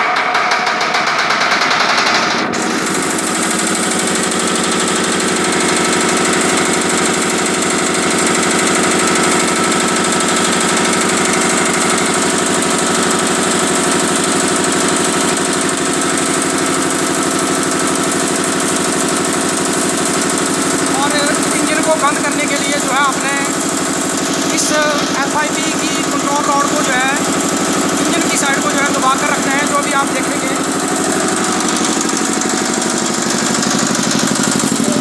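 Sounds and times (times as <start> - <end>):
diesel engine running: 1.2 - 35.0.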